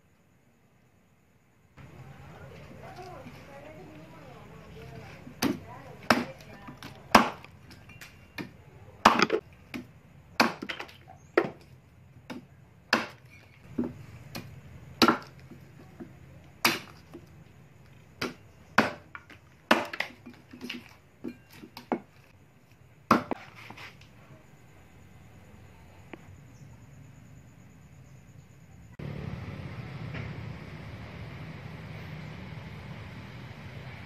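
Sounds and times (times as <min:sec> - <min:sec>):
axe chopping into branch: 0:05.4 - 0:07.5, 0:08.4 - 0:11.6, 0:12.3 - 0:15.4, 0:16.6 - 0:17.1, 0:18.2 - 0:20.8, 0:23.1 - 0:23.4.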